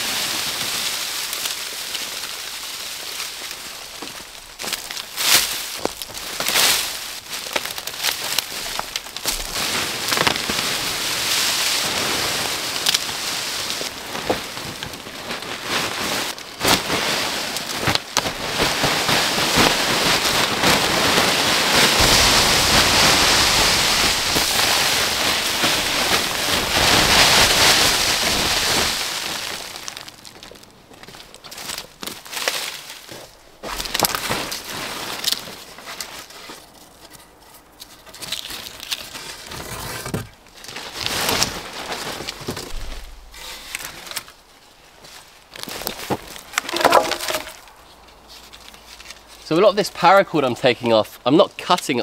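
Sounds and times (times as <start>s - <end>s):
brushwood crackling and rustling: 0.0s - 52.0s
twigs snapping: 3.3s - 10.6s, 29.0s - 39.2s, 45.5s - 49.4s.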